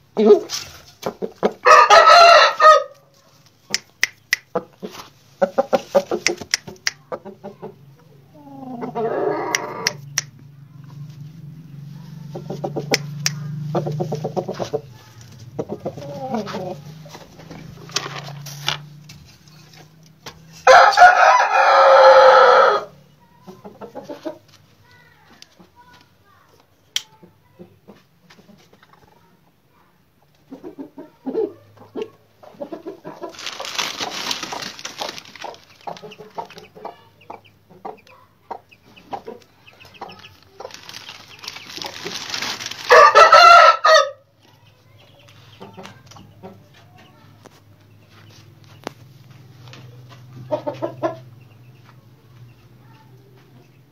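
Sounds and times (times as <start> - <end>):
chickens clucking: 0.0 - 20.6, 21.6 - 53.9
rooster crowing: 1.6 - 3.0, 8.9 - 10.0, 20.6 - 23.0, 42.9 - 44.2
rustling: 33.2 - 36.6, 40.1 - 43.0.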